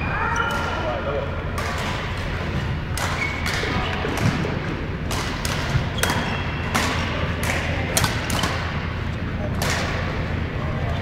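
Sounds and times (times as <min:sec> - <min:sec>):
racket hitting shuttlecock: 0:02.9 - 0:08.8, 0:09.5 - 0:10.2.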